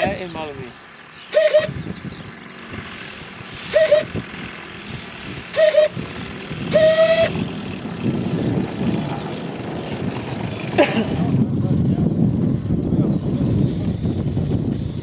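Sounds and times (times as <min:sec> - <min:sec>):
light plane engine drone: 0:00.0 - 0:15.0
short loud steady-pitched calls: 0:00.7 - 0:07.5.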